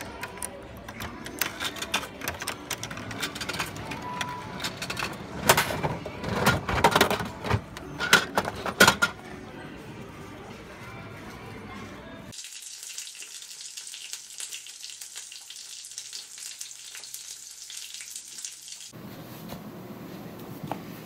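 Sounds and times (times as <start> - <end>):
coins clicking into machine: 0.1 - 7.3.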